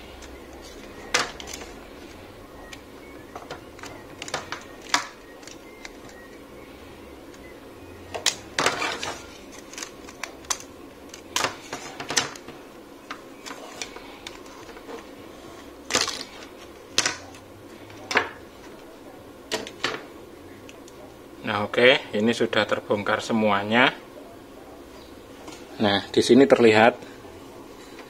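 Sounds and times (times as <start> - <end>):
plastic clatter: 0.6 - 6.2, 8.1 - 15.1.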